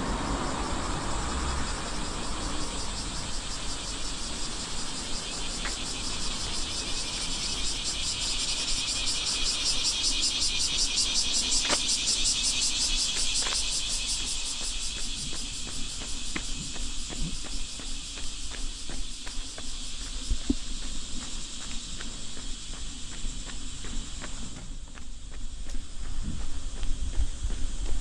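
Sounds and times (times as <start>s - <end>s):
cicadas buzzing: 0.0s - 28.0s
wind on microphone: 23.4s - 28.0s.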